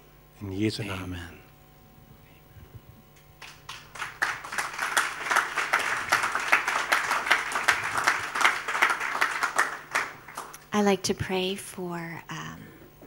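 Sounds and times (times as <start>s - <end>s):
crowd applauding: 3.4s - 10.6s.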